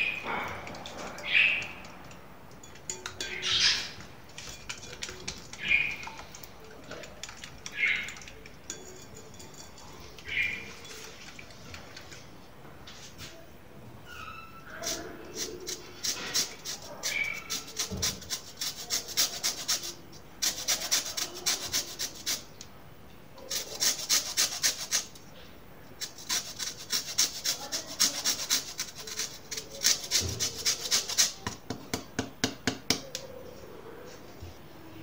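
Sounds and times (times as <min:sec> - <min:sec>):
lemon peel grated on metal grater: 0:02.8 - 0:11.3, 0:14.7 - 0:22.5, 0:23.4 - 0:25.2, 0:26.0 - 0:31.6.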